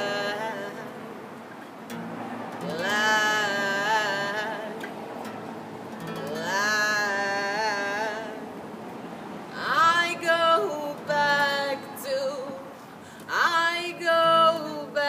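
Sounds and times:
person singing long notes: 0.0s - 1.0s, 2.6s - 5.4s, 6.0s - 8.6s, 9.5s - 15.0s
acoustic guitar playing: 0.0s - 15.0s.

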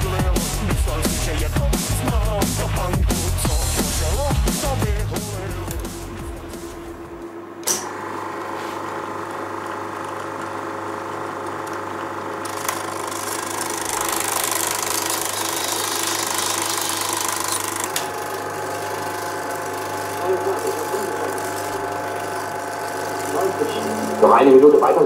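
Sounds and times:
projector switch click: 7.6s - 7.9s, 17.9s - 18.2s
film projector motor running: 7.6s - 25.0s.

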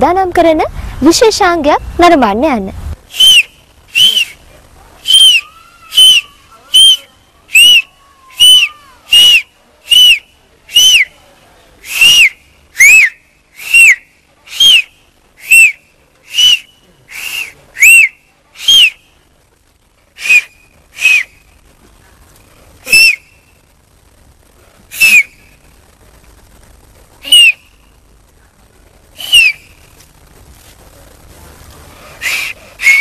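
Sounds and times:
boy whistling: 3.1s - 4.4s, 5.0s - 11.1s, 11.8s - 19.0s, 22.9s - 23.3s, 27.2s - 27.7s, 29.2s - 29.7s, 32.2s - 33.0s.

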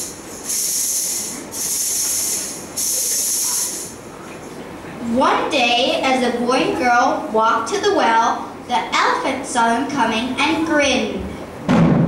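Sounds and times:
loud hissing: 0.0s - 4.1s.

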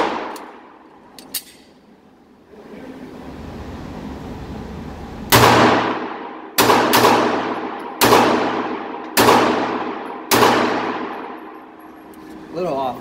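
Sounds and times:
pistol shots echoing: 0.0s - 0.7s, 5.3s - 11.6s.

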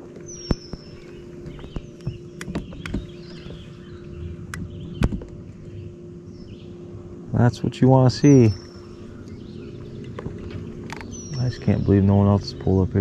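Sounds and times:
birds chirping faintly: 0.0s - 13.0s
steady low hum: 0.0s - 13.0s
fishing tackle clicks and knocks: 10.0s - 11.2s.

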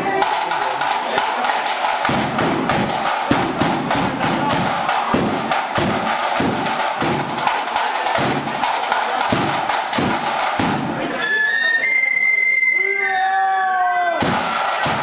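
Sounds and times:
bass drum steady beat: 0.0s - 11.1s
rapid snare drumming: 0.0s - 11.2s, 14.2s - 15.0s.

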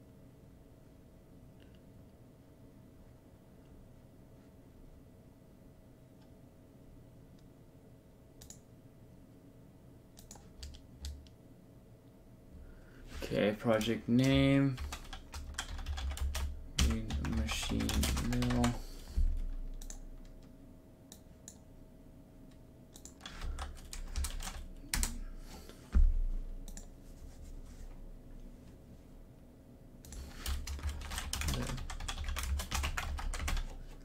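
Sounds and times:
computer keyboard typing: 10.2s - 11.3s, 13.7s - 20.4s, 22.9s - 25.2s, 30.1s - 34.0s.

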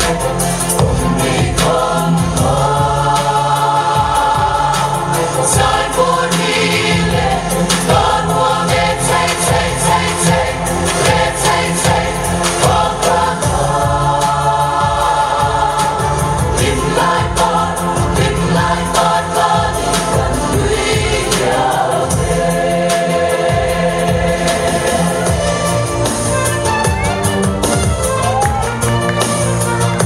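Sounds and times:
group singing over a beat: 0.0s - 26.7s.

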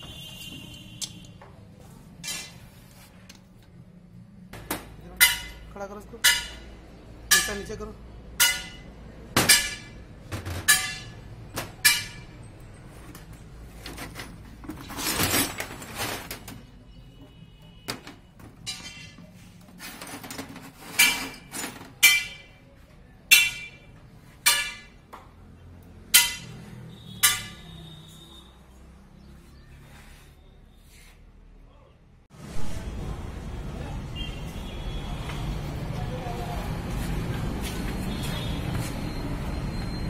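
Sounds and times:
metal tools clinking on workbench: 18.6s - 22.5s.

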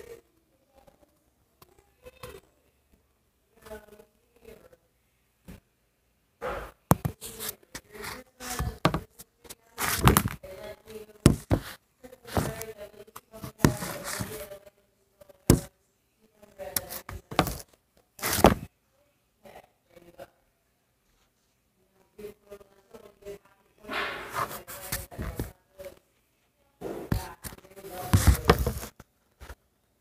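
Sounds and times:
poster board rustling and scraping: 9.8s - 10.4s, 11.3s - 12.6s, 13.4s - 14.5s, 18.2s - 18.7s, 27.1s - 29.6s.

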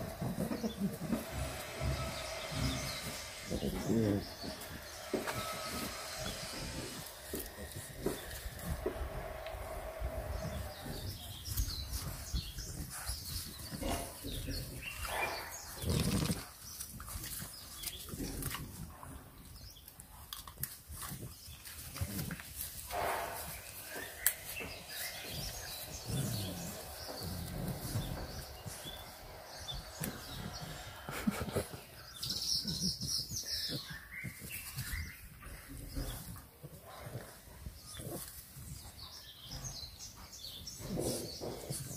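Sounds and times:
puppies snorting and grunting: 0.0s - 41.9s
bird chirping: 22.9s - 37.2s.

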